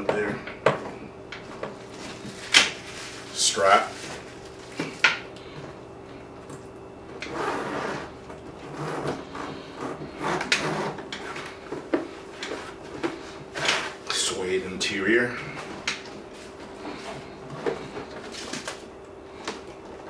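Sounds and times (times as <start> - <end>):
zipper being drawn open: 7.2 - 11.4.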